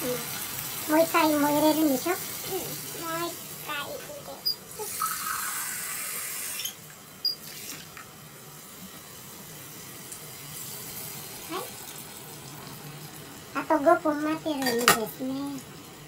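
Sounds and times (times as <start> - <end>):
kitchen tap running: 0.0 - 16.0
water poured into a pot: 4.7 - 6.8.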